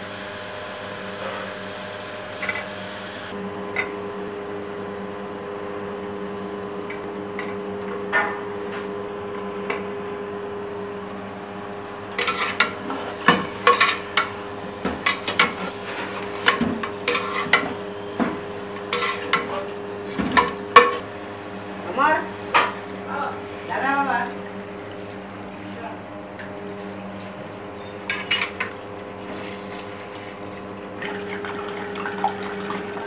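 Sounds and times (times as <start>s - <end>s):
steady hum: 0.0s - 33.0s
metal ladle clattering in pot: 12.2s - 14.3s, 18.9s - 19.5s.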